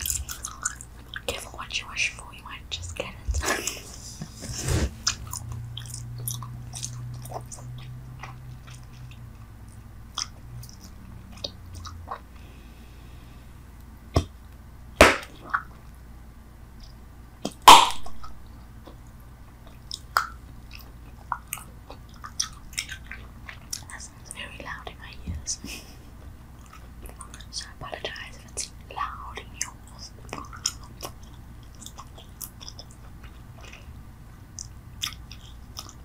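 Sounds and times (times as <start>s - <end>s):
bubble gum snaps: 15.0s - 15.7s, 17.4s - 18.1s
mouth clicks chewing gum: 29.6s - 33.9s, 34.5s - 36.0s.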